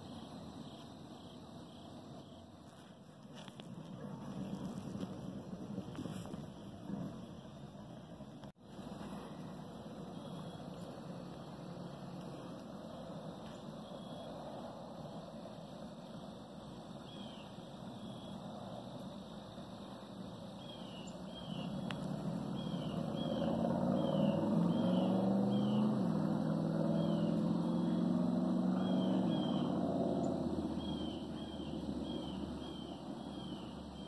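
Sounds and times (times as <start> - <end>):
distant vehicle engine passing: 21.2 - 34.0.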